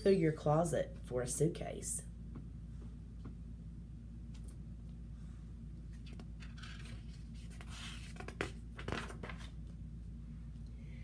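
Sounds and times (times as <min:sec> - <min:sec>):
steady low hum: 0:00.0 - 0:11.0
paper pages rustling: 0:05.9 - 0:09.6.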